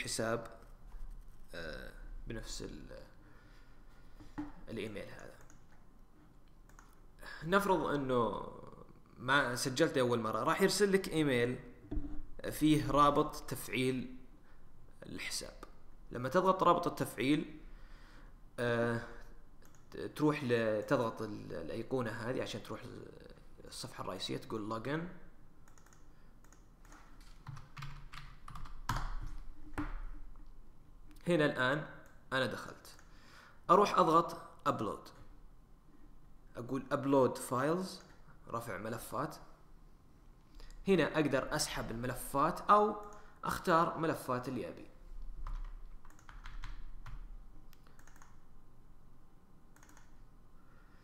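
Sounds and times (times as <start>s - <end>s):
keyboard typing: 6.7s - 7.0s, 25.6s - 30.1s, 45.4s - 48.5s, 49.7s - 50.2s
mouse and keyboard clicks: 25.7s - 27.6s, 47.7s - 48.4s, 49.8s - 50.2s.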